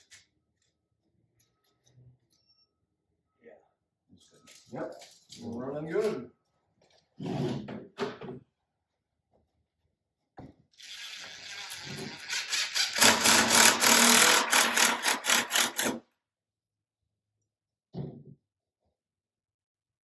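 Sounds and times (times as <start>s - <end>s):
cordless drill driving screw into wood: 10.8s - 16.0s.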